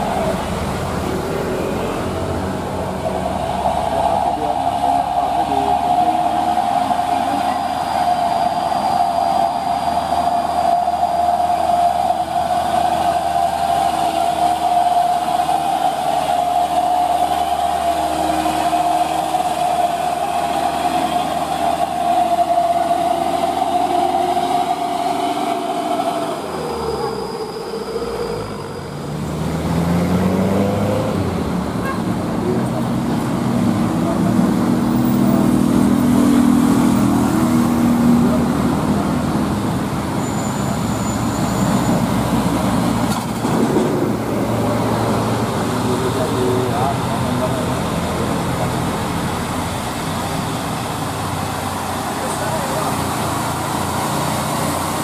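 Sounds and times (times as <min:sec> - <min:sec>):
high whine: 0:00.0 - 0:29.1
truck diesel engine: 0:00.0 - 0:55.0.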